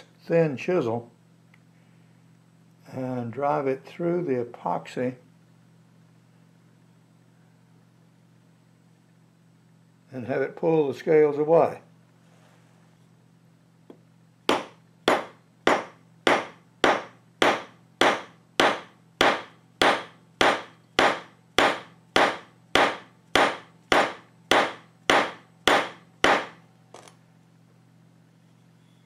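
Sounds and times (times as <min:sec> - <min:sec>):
hammer striking chisel: 0:14.5 - 0:27.1.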